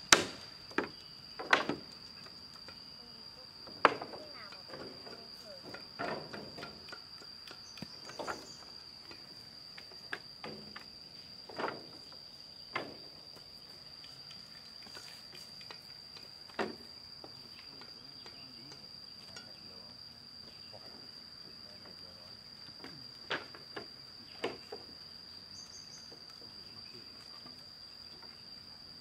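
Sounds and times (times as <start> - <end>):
insect drone: 0.0 - 29.0
wooden planks knocking: 0.1 - 1.9, 3.8 - 6.9.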